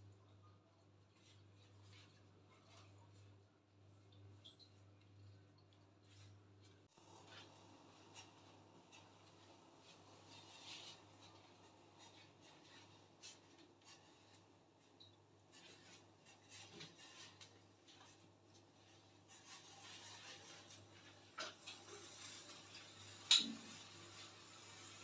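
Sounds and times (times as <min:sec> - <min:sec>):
faint rubbing and rustling: 0:06.0 - 0:25.0.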